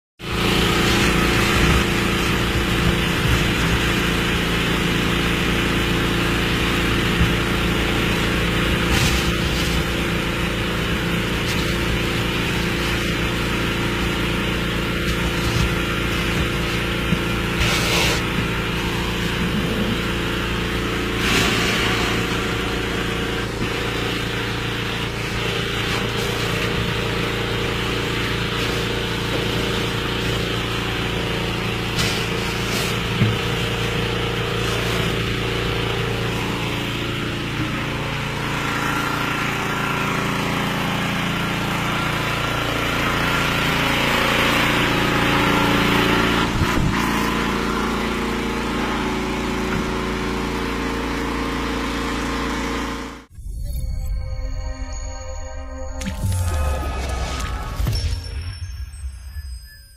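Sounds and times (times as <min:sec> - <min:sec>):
hose sucking air and sludge: 0:00.2 - 0:40.2
suction pump droning: 0:00.2 - 0:53.4.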